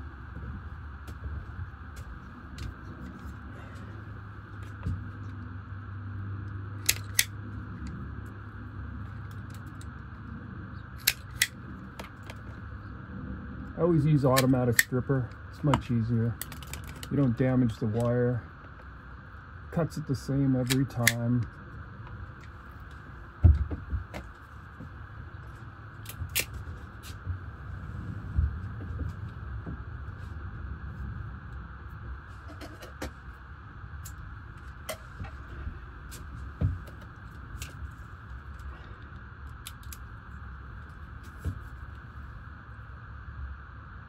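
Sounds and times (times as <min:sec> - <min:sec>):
steady low hum: 0:00.0 - 0:44.0
wire stripper clicks: 0:06.8 - 0:07.9.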